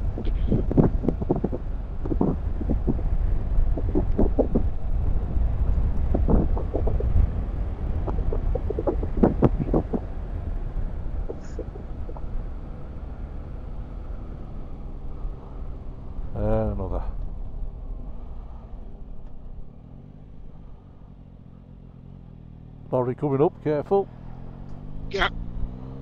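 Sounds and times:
wind rumbling over microphone: 0.0 - 19.5
motorcycle engine noise: 0.0 - 26.0.

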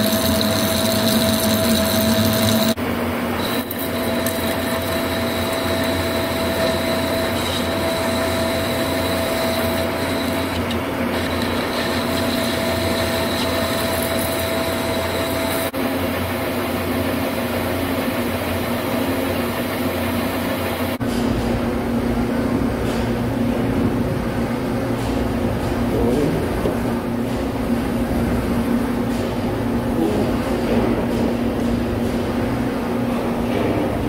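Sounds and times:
metal lathe cutting: 0.0 - 2.8, 3.4 - 15.7.

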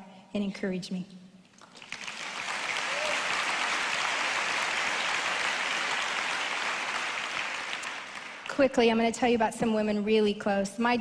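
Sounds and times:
large audience applauding: 1.6 - 8.6.

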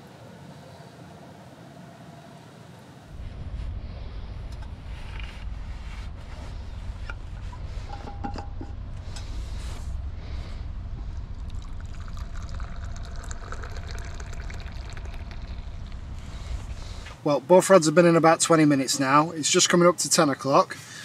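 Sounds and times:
low rumble: 3.1 - 18.3
liquid pouring into cup: 11.1 - 16.5.

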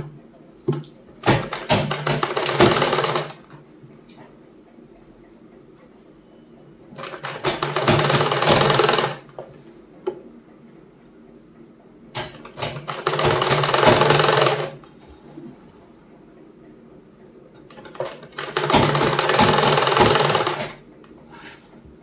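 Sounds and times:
sewing machine stitching: 1.2 - 3.4, 7.0 - 9.3, 12.4 - 14.8, 17.7 - 20.8.

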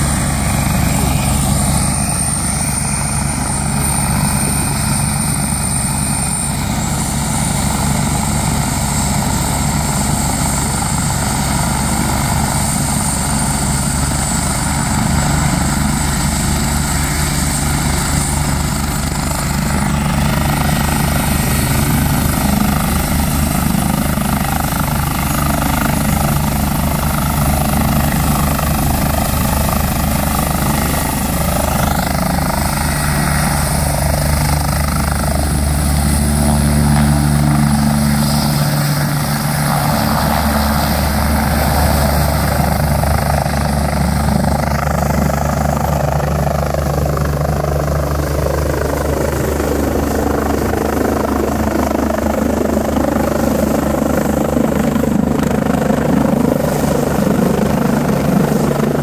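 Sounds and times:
helicopter engine and rotor chop: 0.0 - 59.0.

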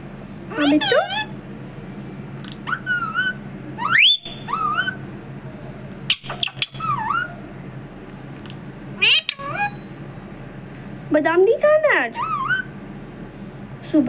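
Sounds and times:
parrot calling: 0.5 - 1.4, 2.5 - 5.1, 6.0 - 7.5, 9.0 - 10.0, 12.1 - 12.8.

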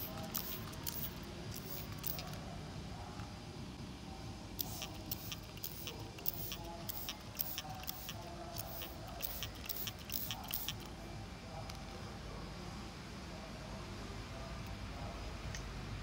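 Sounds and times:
spray bottle hissing mist: 0.0 - 2.4, 4.6 - 10.9.

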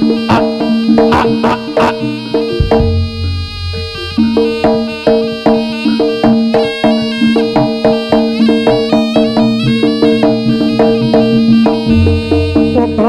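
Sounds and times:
gamelan metal percussion: 0.0 - 13.0
steady held tone: 1.7 - 6.5, 8.6 - 13.0.

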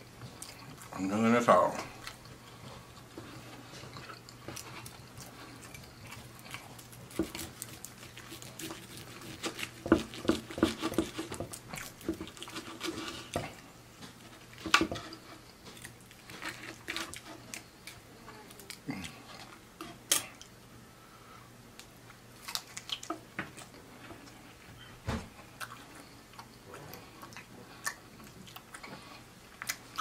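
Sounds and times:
chewing: 0.2 - 1.1, 1.7 - 20.6, 22.4 - 24.7, 25.4 - 30.0
knife and fork cutting on board: 7.1 - 13.6.

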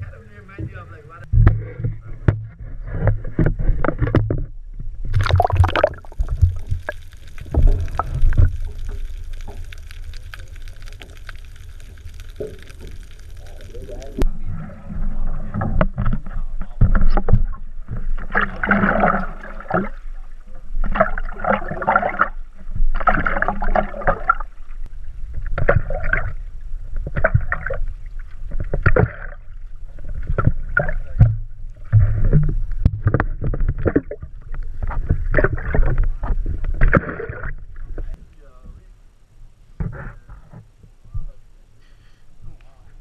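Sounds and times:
low handling noise rumble: 0.0 - 22.6
paddle splashing water: 12.4 - 37.6.

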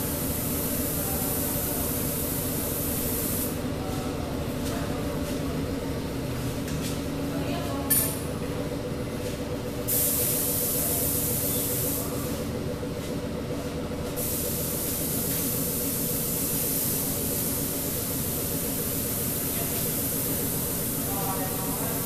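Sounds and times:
paint spray gun hissing: 0.0 - 3.6, 9.9 - 12.4, 14.2 - 22.0
low mechanical hum: 0.0 - 22.0.

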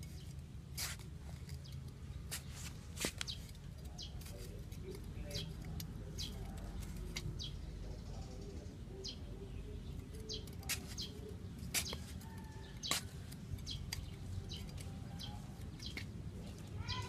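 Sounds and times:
trowel digging into dry soil: 0.0 - 5.6, 10.3 - 15.0
small birds chirping: 0.0 - 17.0.

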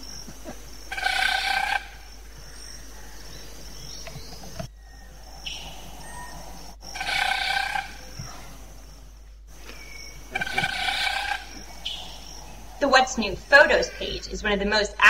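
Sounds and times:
forest insects droning: 0.0 - 15.0
bird buzzy display call: 0.9 - 3.1, 3.8 - 14.5.

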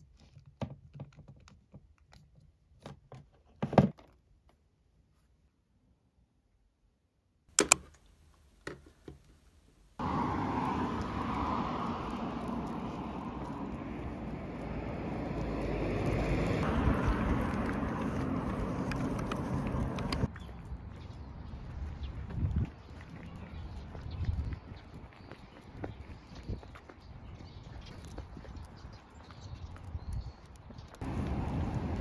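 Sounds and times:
sharp click: 7.5 - 8.0
road traffic: 7.5 - 30.0, 30.6 - 32.0.

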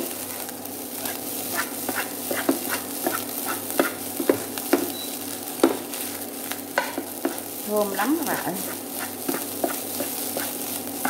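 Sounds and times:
rice sizzling in a pan: 0.0 - 11.0
spatula scraping and knocking pan: 1.0 - 5.0, 6.7 - 7.5, 8.2 - 10.7.

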